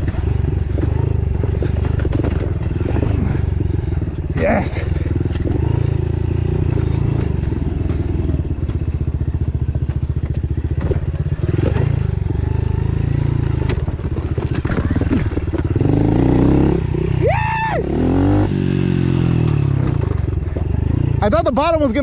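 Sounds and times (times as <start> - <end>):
bike clattering over rocks: 0.0 - 3.5, 13.5 - 15.8
dirt bike engine running: 0.0 - 22.0.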